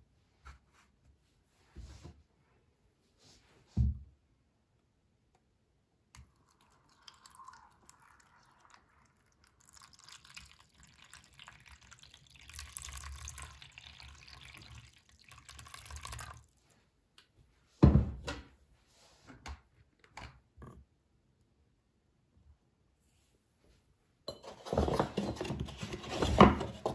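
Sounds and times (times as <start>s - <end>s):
water pouring and splashing: 6.3s - 16.6s.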